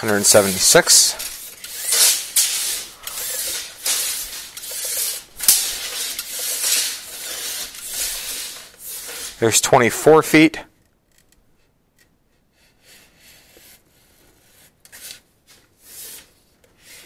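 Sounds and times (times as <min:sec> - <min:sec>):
tape measure blade sliding out: 0:00.0 - 0:09.6, 0:14.9 - 0:17.0.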